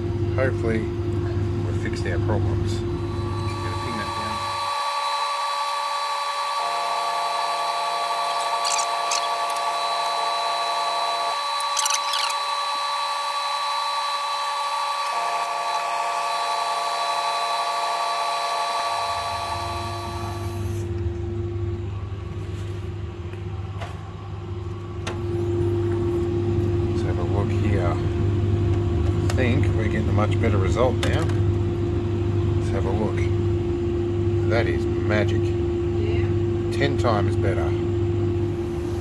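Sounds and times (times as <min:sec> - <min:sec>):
lower motor tone: 0:01.7 - 0:22.1
laser engraver motors whining: 0:02.0 - 0:20.9.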